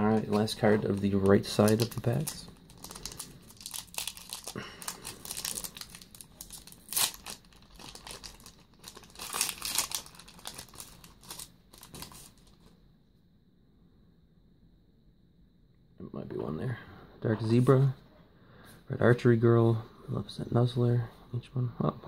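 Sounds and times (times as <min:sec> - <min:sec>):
foil wrapper crinkling and tearing: 0:00.0 - 0:12.7
faint high-pitched whine: 0:00.0 - 0:22.0.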